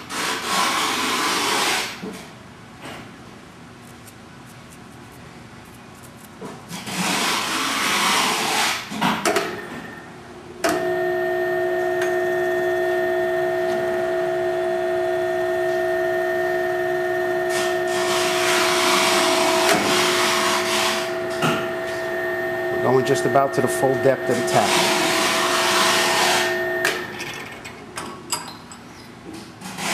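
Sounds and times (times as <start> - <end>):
drill press motor humming: 10.7 - 27.2.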